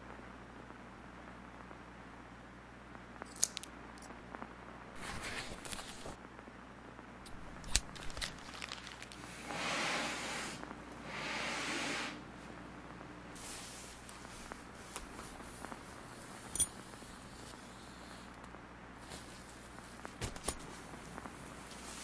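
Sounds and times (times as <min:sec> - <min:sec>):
backpack handling noise: 0:05.0 - 0:06.2, 0:19.0 - 0:22.0.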